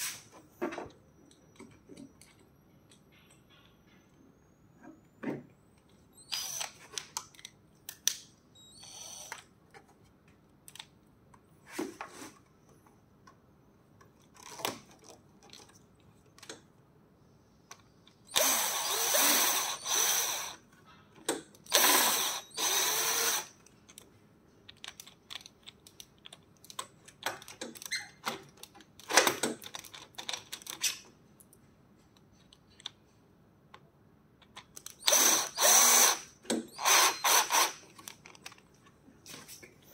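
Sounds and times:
metal parts clicking and knocking: 0:24.6 - 0:31.1
cordless drill driving bolt: 0:35.0 - 0:37.8.

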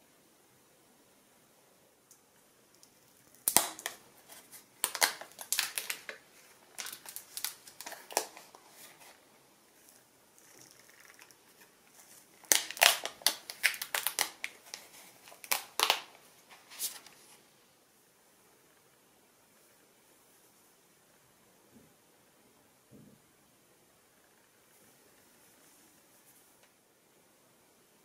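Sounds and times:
plastic film crinkling: 0:03.1 - 0:17.2.

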